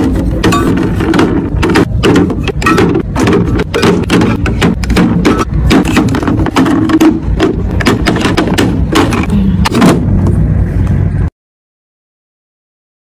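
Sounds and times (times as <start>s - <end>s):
bottles knocking and clattering: 0.0s - 9.3s
low rumble: 7.2s - 11.3s.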